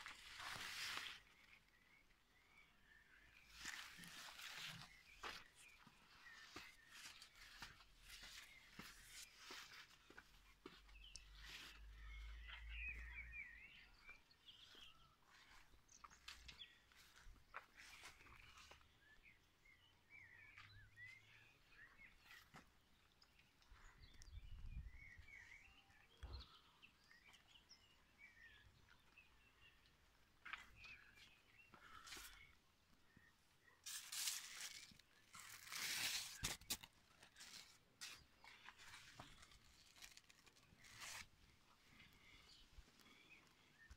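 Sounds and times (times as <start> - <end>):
leaves rustling against camera: 0.0 - 1.8, 3.4 - 13.1, 33.8 - 43.1
faint bird chirps: 0.0 - 36.4.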